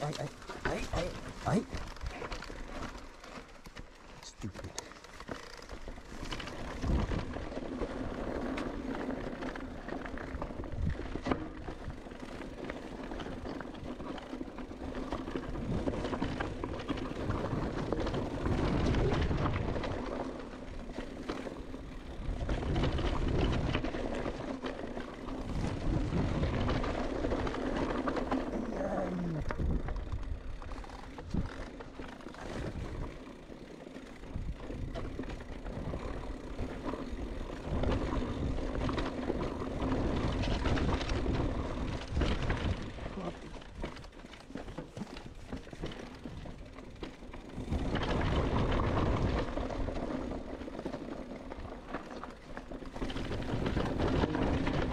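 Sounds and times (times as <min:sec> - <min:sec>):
bike rattling: 0:00.0 - 0:54.9
bike tyres rolling on dirt: 0:00.0 - 0:54.9
wind buffeting microphone: 0:06.7 - 0:07.5, 0:25.4 - 0:27.6, 0:29.3 - 0:31.6.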